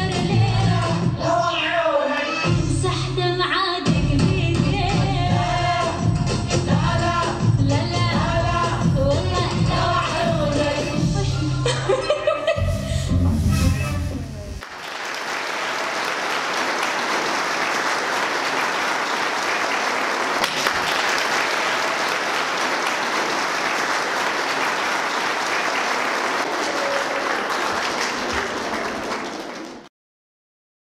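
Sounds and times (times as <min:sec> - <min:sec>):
audience applauding: 0:14.6 - 0:29.9.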